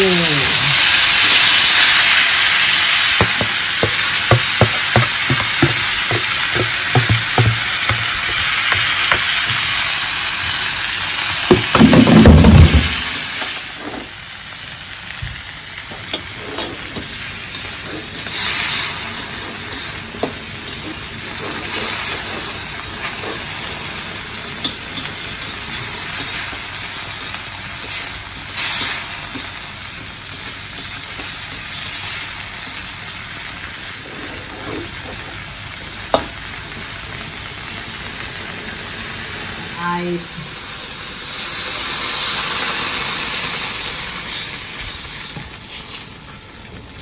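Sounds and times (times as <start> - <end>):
vegetables sizzling in a wok: 0.0 - 47.0
sharp knock: 3.2 - 9.3
spatula scraping a pan: 16.2 - 23.8, 34.0 - 35.3.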